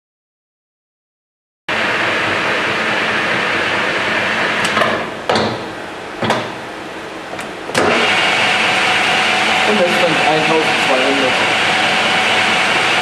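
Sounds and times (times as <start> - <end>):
metal lathe cutting: 7.8 - 13.0.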